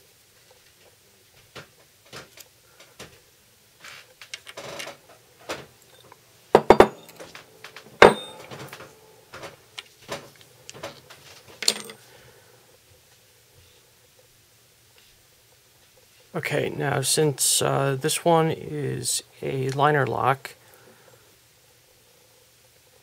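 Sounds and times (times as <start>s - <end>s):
small tools clinking on workbench: 5.9s - 7.4s, 8.0s - 8.9s, 11.6s - 12.0s.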